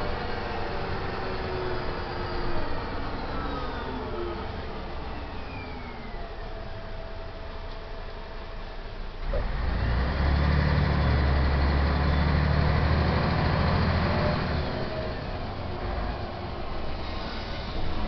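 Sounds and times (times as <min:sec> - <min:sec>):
bus diesel engine: 0:00.0 - 0:18.0.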